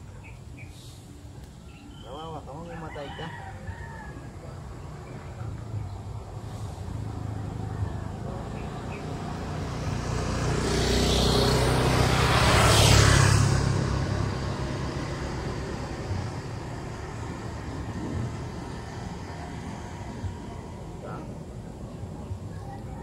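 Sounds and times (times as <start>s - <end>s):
motor scooter passing by: 4.7s - 23.0s.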